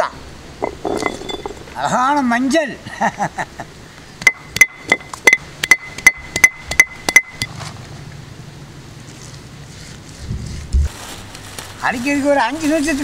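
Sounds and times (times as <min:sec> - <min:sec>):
stone roller knocking on stone slab: 0:00.6 - 0:01.7.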